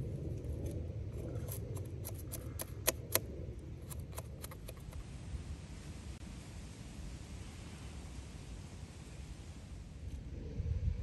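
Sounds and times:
low rumble: 0.0s - 2.3s
sharp clicks: 2.0s - 5.0s.

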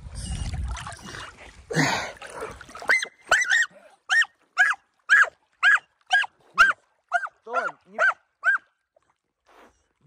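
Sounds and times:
water splash: 0.4s - 3.5s
dog yelping barks: 2.8s - 8.7s.

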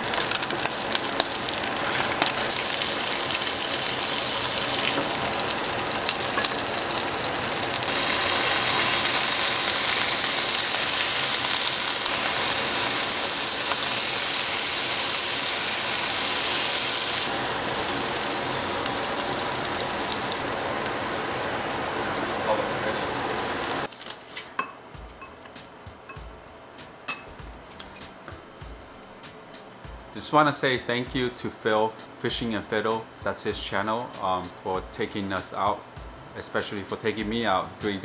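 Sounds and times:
fish sizzling in frying pan: 0.0s - 23.9s
sharp crackles: 0.0s - 23.9s.

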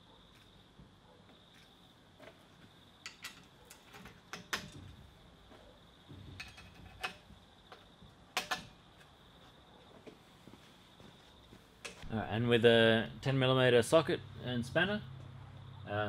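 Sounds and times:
metallic clicks of bolts and nuts: 3.0s - 4.9s, 6.2s - 7.3s, 8.4s - 8.8s.

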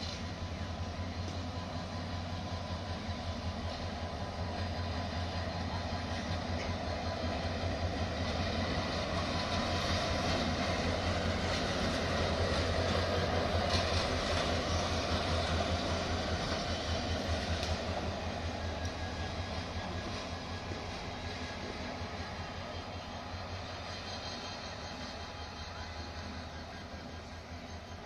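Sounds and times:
tank wagons rolling on track: 3.4s - 28.0s.

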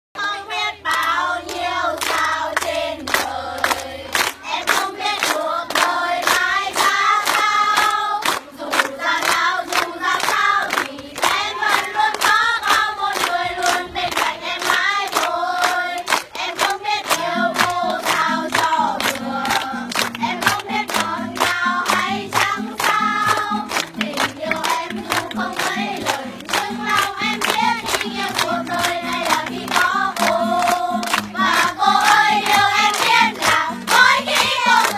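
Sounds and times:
children singing: 0.2s - 34.9s.

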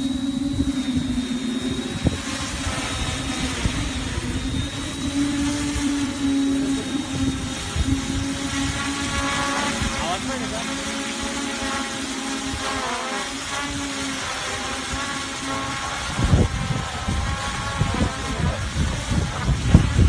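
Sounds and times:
low rumble: 0.0s - 10.8s
drone propellers whirring: 0.0s - 20.0s.

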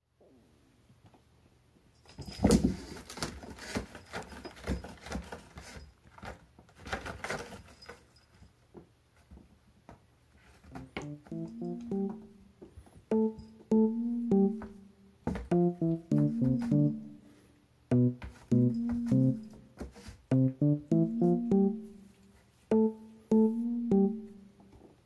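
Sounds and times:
light piano music: 10.7s - 24.6s.

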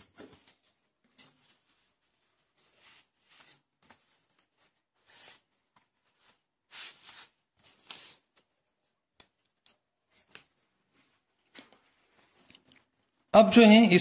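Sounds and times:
paper rustling: 0.0s - 12.6s.

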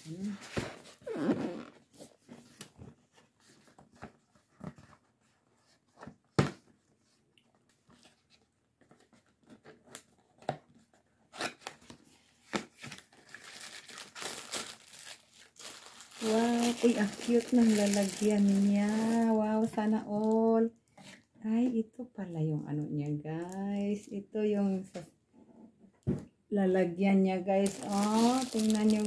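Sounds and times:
plastic bag crinkling: 12.9s - 20.4s, 27.6s - 29.0s.

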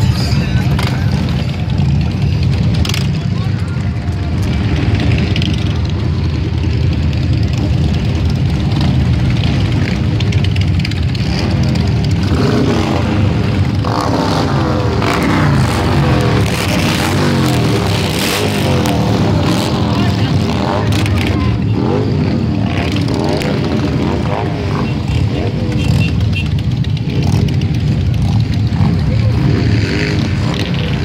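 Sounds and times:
motorcycle engines revving: 0.0s - 31.0s
motorcycles rumbling past: 0.0s - 31.0s.

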